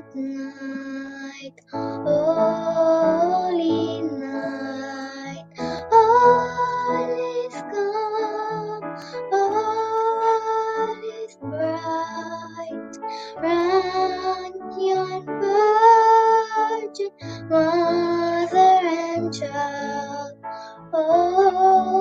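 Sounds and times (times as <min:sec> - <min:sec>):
girl singing: 0:00.0 - 0:22.0.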